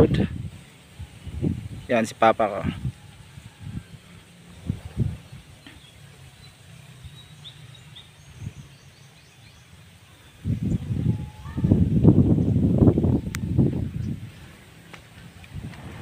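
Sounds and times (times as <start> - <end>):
wind buffeting microphone: 0.0 - 1.9, 2.6 - 6.0, 10.4 - 16.0.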